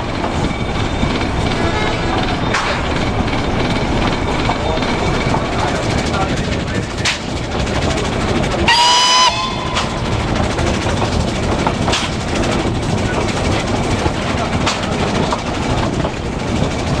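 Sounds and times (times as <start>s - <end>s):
sharp rail clicks: 0.0s - 17.0s
train rumbling on track: 0.0s - 17.0s
steam locomotive whistle: 8.6s - 9.9s.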